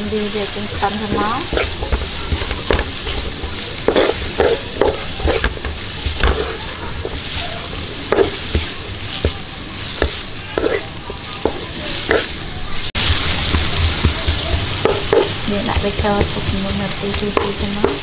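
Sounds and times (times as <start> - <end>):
food sizzling in hot oil: 0.0 - 18.0
wooden spatula scraping pan: 0.2 - 12.4.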